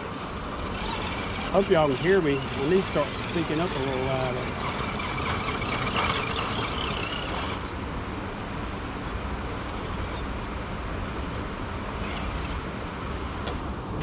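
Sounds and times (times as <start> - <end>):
electric motor and gears whining: 0.0 - 7.8, 9.0 - 10.4, 11.1 - 12.8
steady rushing background noise: 0.0 - 14.0.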